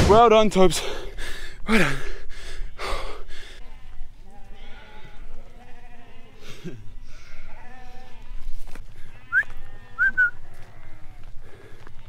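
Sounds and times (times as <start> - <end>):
sheep and lambs bleating: 3.6 - 12.0
short high-pitched bleats: 3.7 - 8.4, 9.0 - 11.2.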